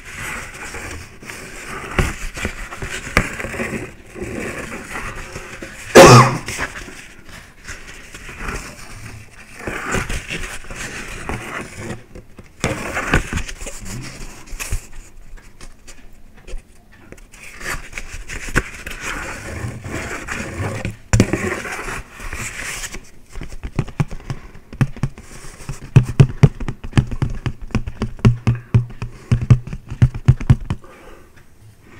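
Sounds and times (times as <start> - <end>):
fingertips tapping on paper plate: 23.3 - 31.1.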